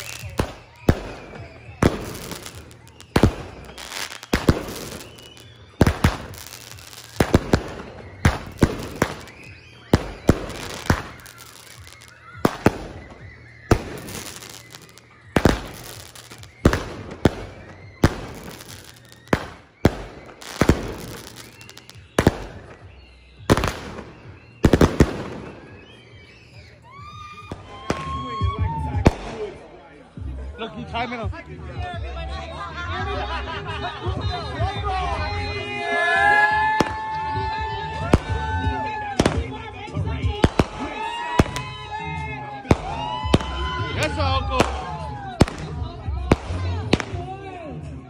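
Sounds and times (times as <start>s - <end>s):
fireworks bangs echoing: 0.0s - 26.7s, 29.0s - 29.7s, 39.2s - 39.6s, 40.2s - 41.7s, 42.6s - 43.6s, 44.6s - 47.3s.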